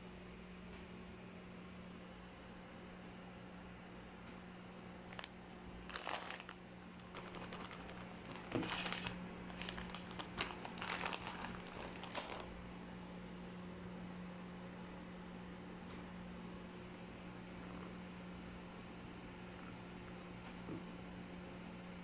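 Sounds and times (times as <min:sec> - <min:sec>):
plastic bag crinkling: 0:05.1 - 0:12.6.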